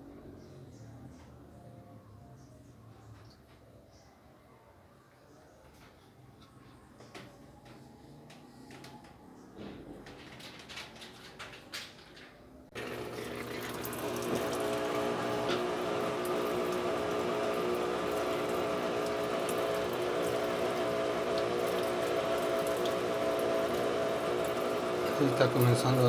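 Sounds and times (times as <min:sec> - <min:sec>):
washing machine motor humming: 0:12.7 - 0:26.0
rushing water: 0:12.8 - 0:15.1.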